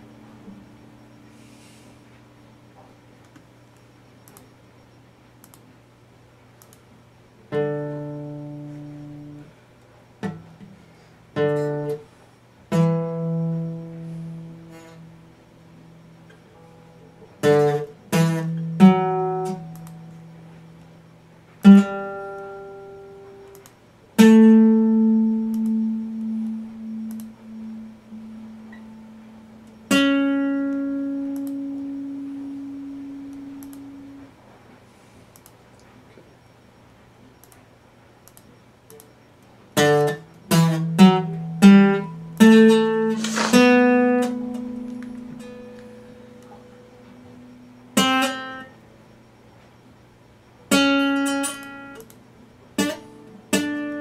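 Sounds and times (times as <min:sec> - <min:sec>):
acoustic guitar strums and notes: 0:07.5 - 0:09.6, 0:10.2 - 0:23.5, 0:24.2 - 0:34.2, 0:39.7 - 0:48.9, 0:50.7 - 0:54.0.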